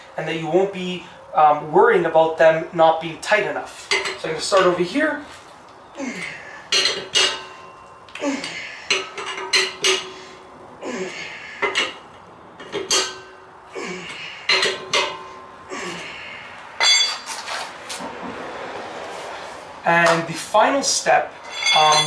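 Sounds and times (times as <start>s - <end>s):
wrench clinking on lug nuts: 6.7s - 10.2s, 11.6s - 13.5s, 14.4s - 15.4s, 16.8s - 17.3s, 21.4s - 22.0s.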